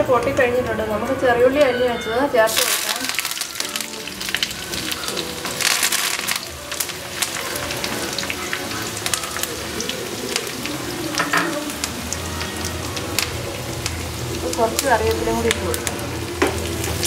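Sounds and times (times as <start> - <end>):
frying in hot oil sizzle: 2.5 - 17.0
crackles and pops: 2.6 - 10.8.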